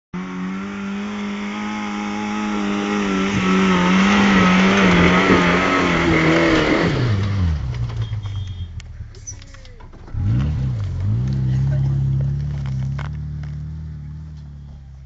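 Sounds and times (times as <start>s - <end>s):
off-road vehicle engine revving: 0.2s - 15.0s
tyres on loose dirt: 0.2s - 15.0s.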